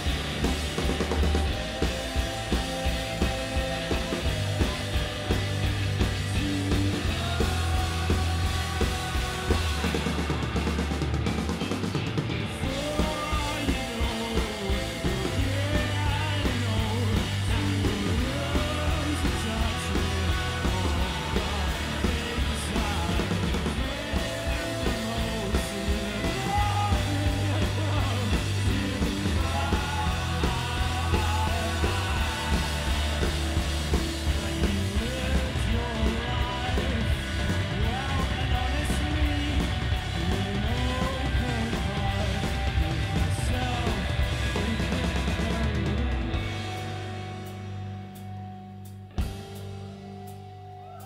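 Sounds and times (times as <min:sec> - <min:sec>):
bass line: 0:00.0 - 0:51.0
drum kit: 0:00.0 - 0:51.0
electric guitars: 0:00.0 - 0:51.0
rock band playing live: 0:00.0 - 0:51.0.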